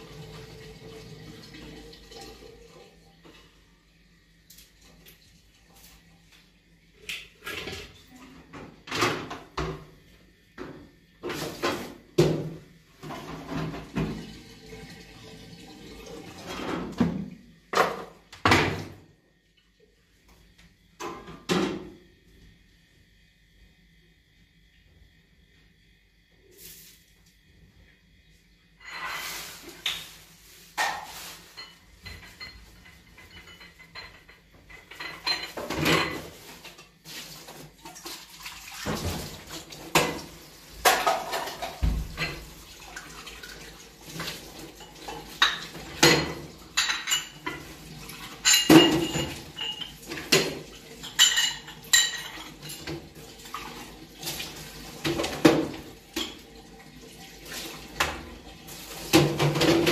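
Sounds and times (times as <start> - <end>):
dishes and utensils clattering: 28.8 - 38.0, 38.9 - 42.6, 43.5 - 56.7, 57.5 - 59.9.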